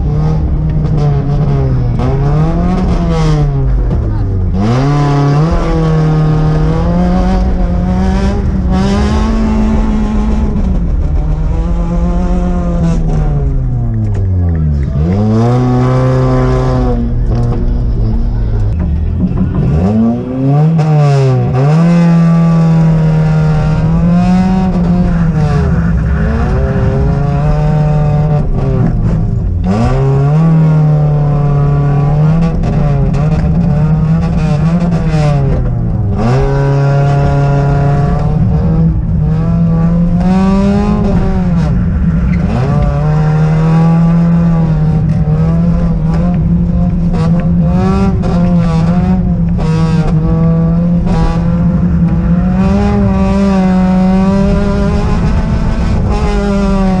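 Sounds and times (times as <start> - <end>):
car engine revving: 0.0 - 57.0.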